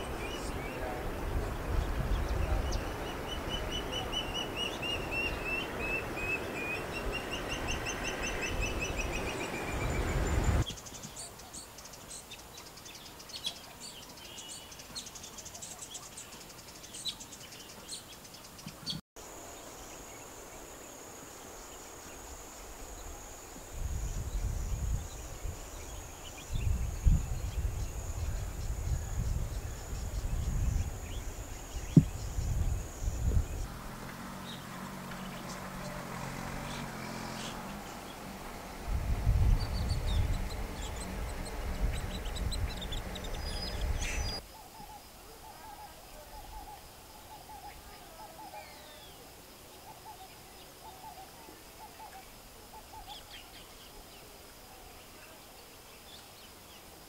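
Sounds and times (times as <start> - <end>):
wind rumble: 0.0 - 10.6, 22.8 - 44.4
steady high-pitched hiss: 0.0 - 57.0.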